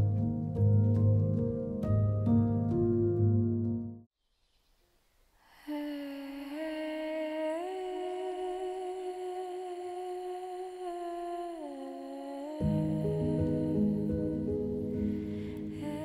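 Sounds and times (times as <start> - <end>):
instrumental music: 0.0 - 4.1, 12.6 - 16.0
person humming a slow melody: 5.6 - 16.0.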